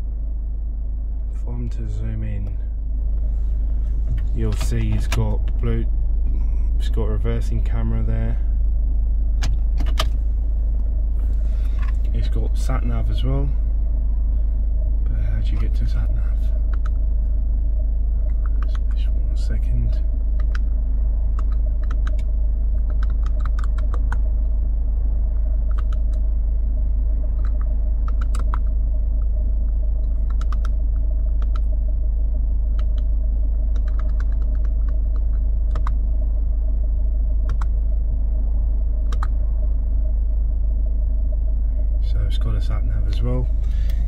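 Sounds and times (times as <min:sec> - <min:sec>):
low car cabin rumble: 0:00.0 - 0:44.0.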